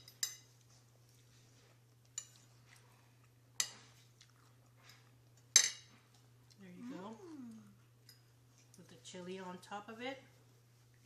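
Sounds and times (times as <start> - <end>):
cutlery clinking on a ceramic plate: 4.9 - 6.0
low hum: 6.6 - 7.9.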